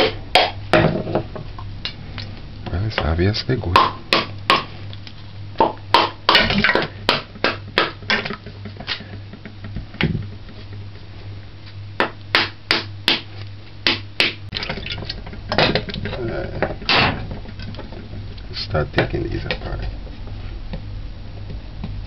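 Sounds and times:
hammer knocking on coconut shell: 3.7 - 4.7, 5.6 - 6.4, 7.1 - 8.0, 12.0 - 14.4.

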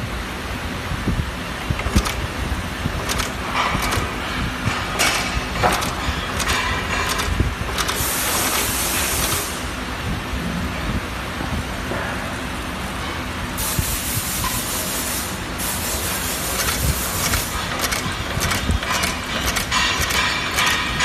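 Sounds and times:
machine low rumble: 0.0 - 12.7, 16.2 - 21.0
air hissing: 7.8 - 9.7.

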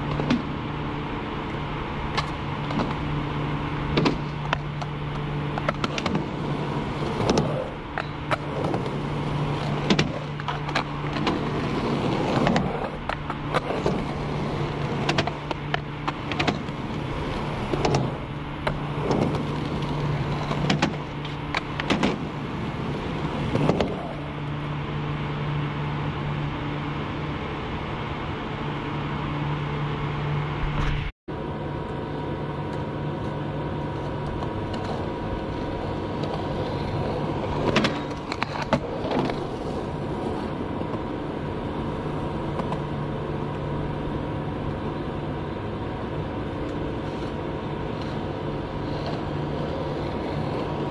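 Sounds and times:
skateboard clacks and scrapes: 0.0 - 24.8, 32.5 - 50.9
low steady hum: 0.0 - 50.9
skateboard wheels rolling on concrete: 0.0 - 50.9.

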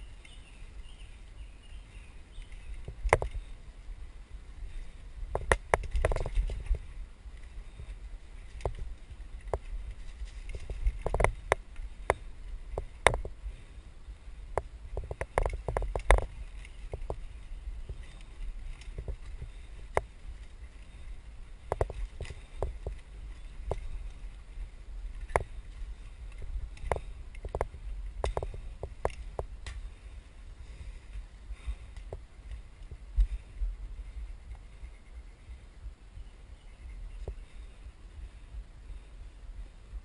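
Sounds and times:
low riding rumble: 0.0 - 40.0
bike clicks and knocks: 2.4 - 3.6, 5.3 - 7.5, 8.4 - 13.4, 14.5 - 24.4, 25.1 - 30.0.

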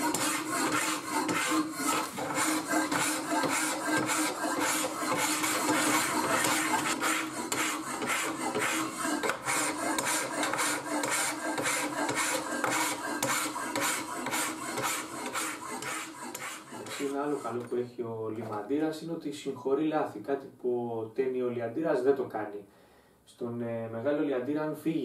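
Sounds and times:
file rasping on steel blade: 0.0 - 17.7.

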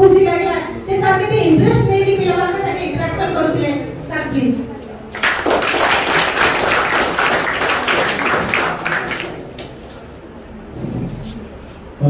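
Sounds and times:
audience applause: 5.2 - 9.7.

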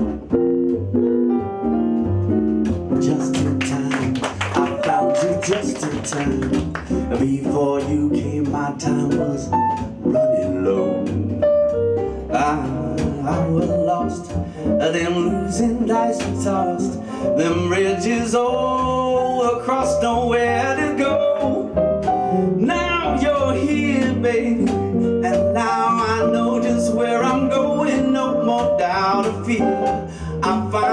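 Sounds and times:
bass: 0.0 - 30.9
piano: 0.0 - 30.9
man vocalising: 3.0 - 8.4.

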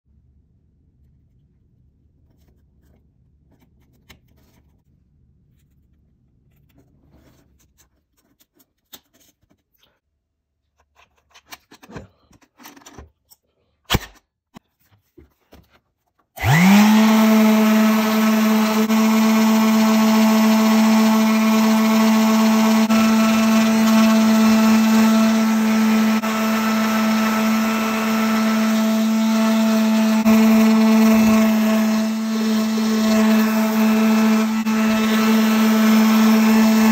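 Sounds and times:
orbital sander running: 16.4 - 36.9.

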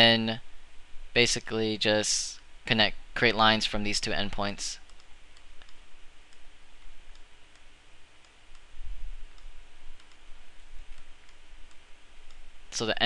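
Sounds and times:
steady hiss: 0.0 - 13.0
computer mouse clicking: 4.8 - 6.5, 7.1 - 8.7, 9.3 - 10.3, 10.9 - 12.4.

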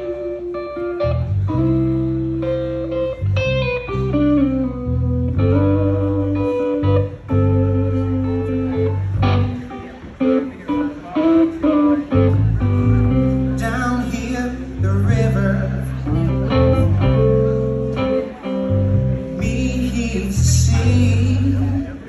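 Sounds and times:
bass guitar notes: 0.0 - 22.0
electric guitar: 0.0 - 22.0
man singing: 13.6 - 17.1, 19.2 - 22.0.

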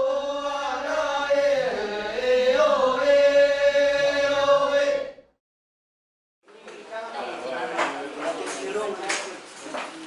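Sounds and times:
voices singing long sliding notes: 0.0 - 5.3.

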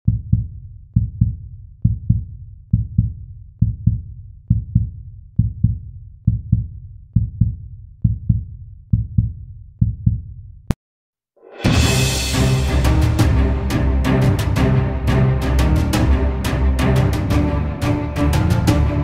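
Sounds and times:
heartbeat thumps: 0.1 - 10.4.

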